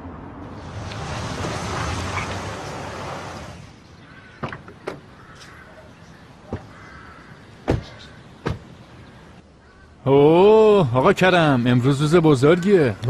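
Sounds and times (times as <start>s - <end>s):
car door thuds: 7.6s - 8.7s.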